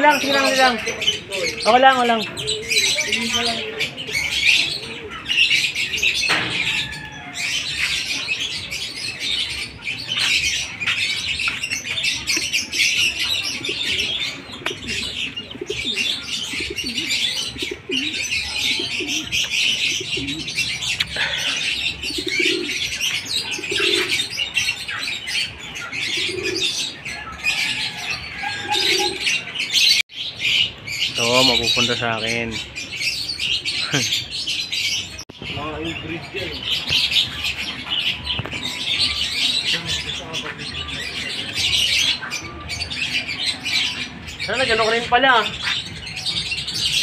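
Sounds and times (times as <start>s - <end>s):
pigeon cooing: 0.0s - 30.7s
pigeons chirping and twittering: 0.0s - 47.0s.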